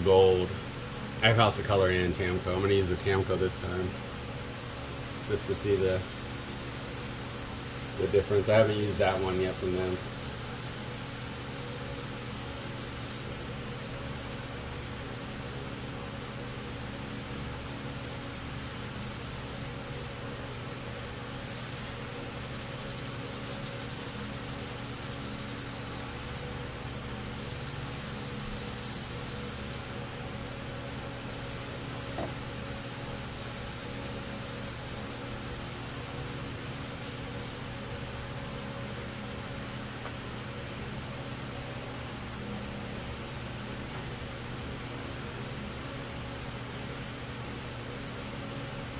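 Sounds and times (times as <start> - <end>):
low steady hum: 0.0 - 48.9
hand sanding plastic: 4.6 - 13.2, 13.8 - 14.4, 17.2 - 19.8, 21.4 - 26.4, 27.4 - 29.9, 31.3 - 37.6.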